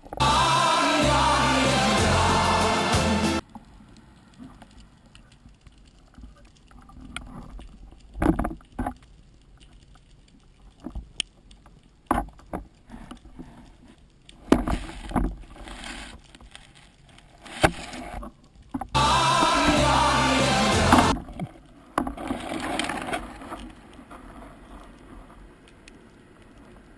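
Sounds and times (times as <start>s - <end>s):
background music: 0.2s - 3.4s, 19.0s - 21.2s.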